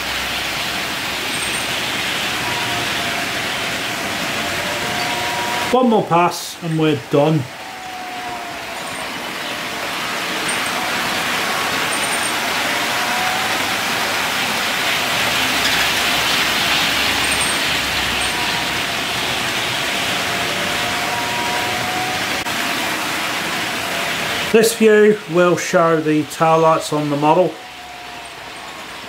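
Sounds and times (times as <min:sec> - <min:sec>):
model train running on track: 0:00.0 - 0:29.0
thin squeak of wagons: 0:10.4 - 0:10.8, 0:15.5 - 0:18.8.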